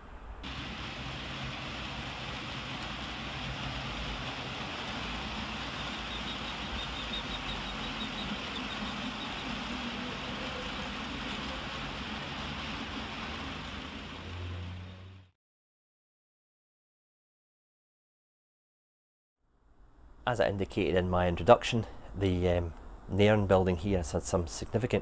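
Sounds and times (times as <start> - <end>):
model train running with hum: 0.4 - 15.3
quick light ticks of wagons: 1.5 - 15.2.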